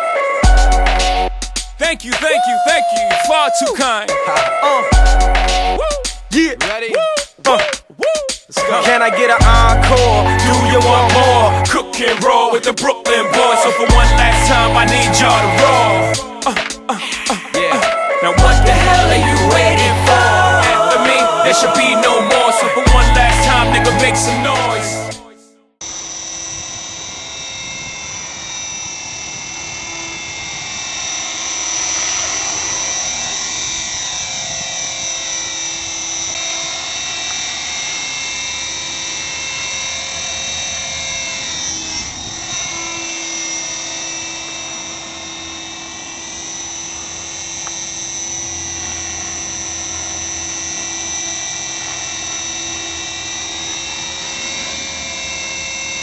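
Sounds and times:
model helicopter motor whine: 0:25.8 - 0:56.0.

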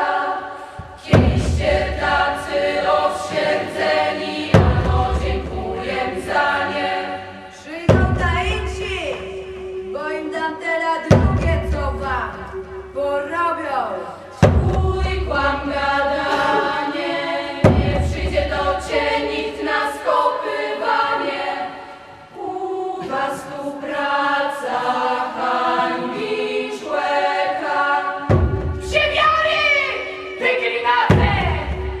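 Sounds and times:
choir singing in harmony: 0:00.0 - 0:32.0
deep thud: 0:00.8 - 0:02.5, 0:17.6 - 0:18.5.

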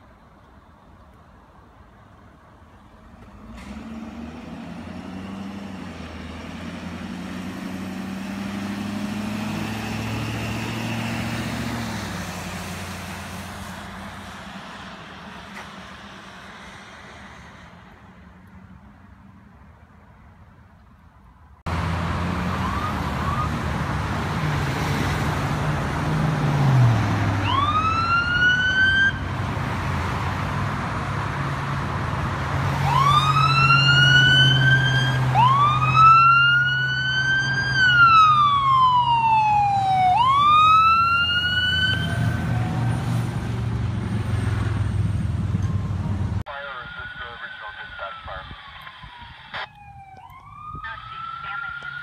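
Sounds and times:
traffic and engine noise: 0:00.0 - 0:52.0
ambulance siren: 0:22.2 - 0:23.8, 0:27.4 - 0:29.3, 0:32.8 - 0:43.3, 0:45.6 - 0:52.0.

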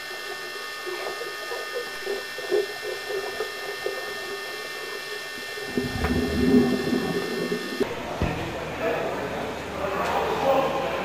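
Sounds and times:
steady high whine: 0:00.2 - 0:08.1
low rumble: 0:05.7 - 0:07.8
soft underwater knocks and blips: 0:05.7 - 0:08.4.

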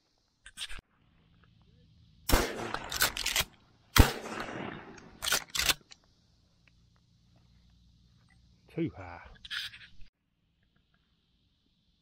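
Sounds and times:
shotgun shots echoing: 0:02.3 - 0:05.8.

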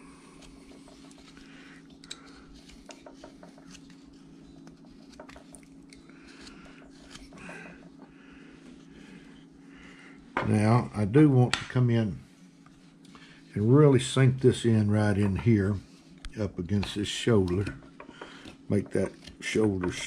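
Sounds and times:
steady low hum: 0:00.0 - 0:20.0
knife scraping wood: 0:00.2 - 0:08.1, 0:15.2 - 0:20.0.

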